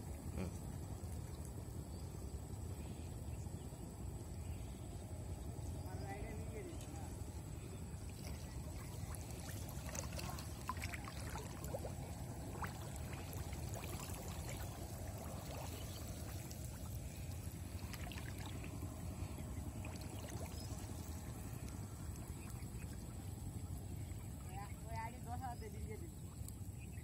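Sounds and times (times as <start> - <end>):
steady low rumble: 0.0 - 27.0
shallow water splashing: 6.1 - 25.3.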